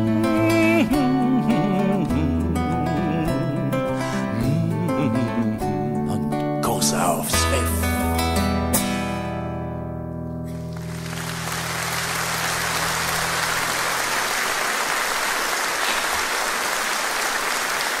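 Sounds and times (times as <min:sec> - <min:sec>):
audience applause: 0:10.5 - 0:18.0.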